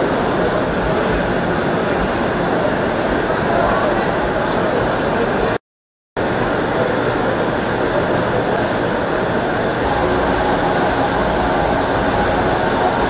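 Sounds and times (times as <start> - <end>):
train cabin rumble and hiss: 6.2 - 13.0.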